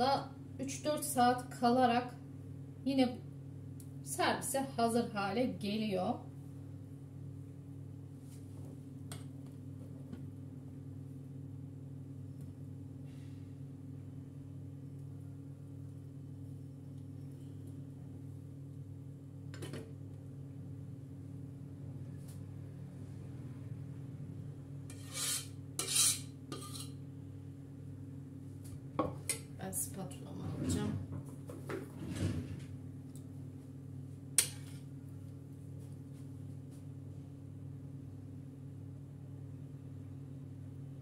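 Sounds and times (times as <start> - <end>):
steady low hum: 0.0 - 41.0
metal spoon scraping a pot: 24.9 - 27.0.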